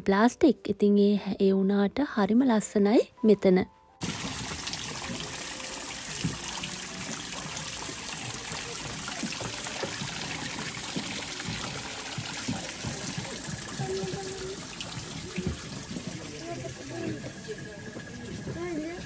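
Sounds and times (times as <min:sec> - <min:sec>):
waterfall splashing into pool: 0:04.0 - 0:17.0.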